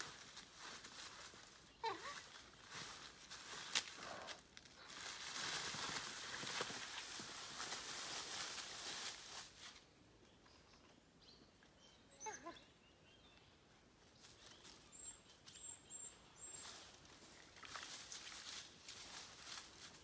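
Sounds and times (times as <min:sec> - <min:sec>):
dry leaves rustling: 0:00.0 - 0:09.9, 0:14.1 - 0:15.6, 0:16.3 - 0:20.0.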